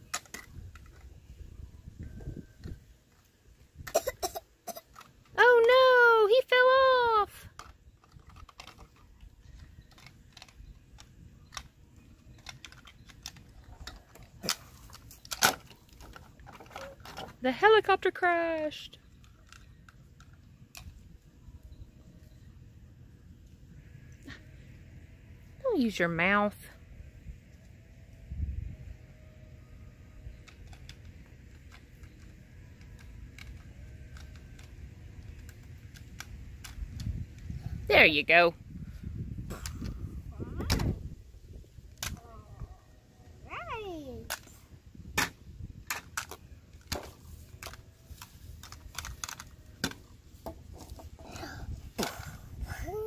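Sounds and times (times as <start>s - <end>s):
plastic toys clicking: 0.0s - 1.1s, 4.7s - 5.8s, 7.4s - 17.3s, 19.1s - 20.9s, 30.3s - 37.5s, 45.9s - 50.1s.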